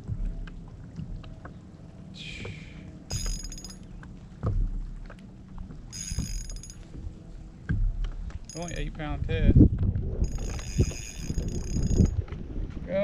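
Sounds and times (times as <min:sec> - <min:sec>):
low wind rumble: 0:03.8 - 0:13.0
fishing reel drag ticking: 0:05.9 - 0:06.8, 0:08.5 - 0:08.9, 0:10.3 - 0:12.2.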